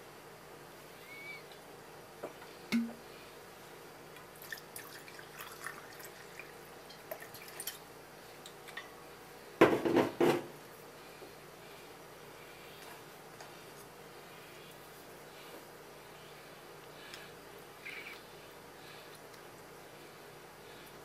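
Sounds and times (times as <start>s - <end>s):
liquid trickling into cup: 4.4s - 7.8s.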